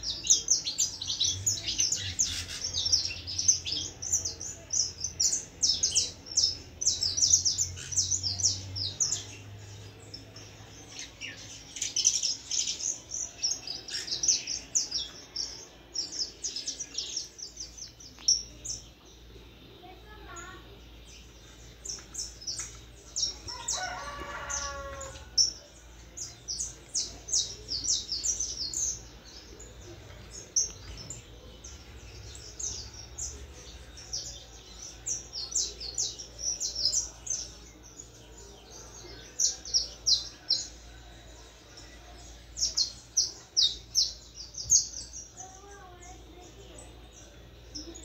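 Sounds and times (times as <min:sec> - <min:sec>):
young canary chirping and trilling: 0:00.0 - 0:15.6.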